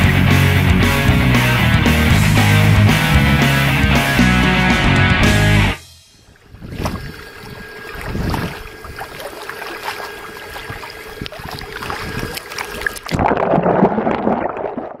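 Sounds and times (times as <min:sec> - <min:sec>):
water sloshing and splashing: 0:06.3 - 0:15.0.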